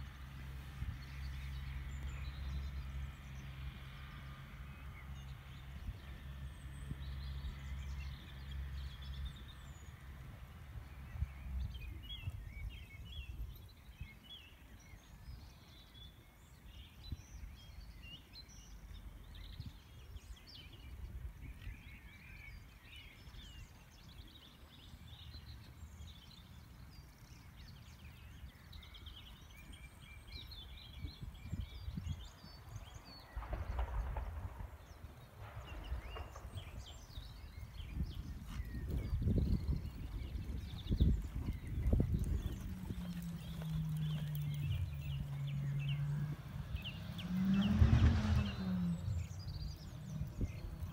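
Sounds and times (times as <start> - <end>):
small birds chirping: 0.0 - 50.9
low steady rumble: 30.5 - 50.9.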